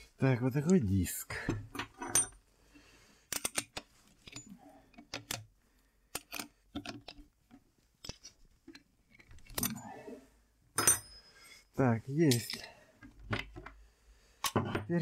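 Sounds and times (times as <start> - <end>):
metal clicks and clinks: 3.3 - 5.4, 12.3 - 12.7.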